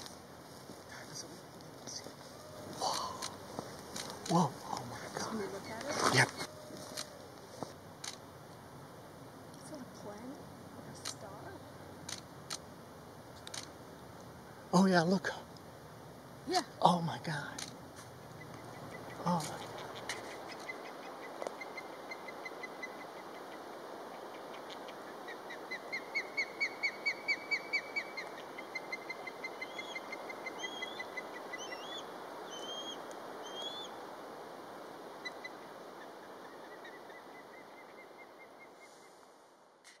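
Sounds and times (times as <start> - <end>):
distant river rushing: 0.0 - 39.8
osprey whistled chirps: 25.3 - 34.0.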